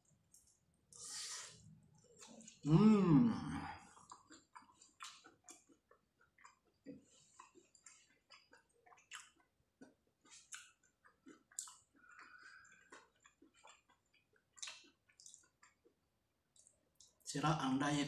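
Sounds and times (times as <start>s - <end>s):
chewing crispy food: 0.0s - 1.0s, 1.8s - 2.8s, 3.8s - 17.3s
wet mouth sounds: 2.2s - 9.5s, 10.3s - 15.7s.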